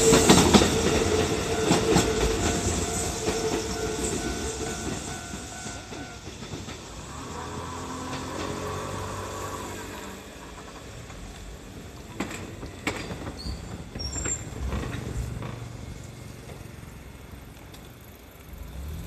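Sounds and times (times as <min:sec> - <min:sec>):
brief high tones: 0:00.0 - 0:06.3
train rumbling on tracks: 0:00.0 - 0:19.0.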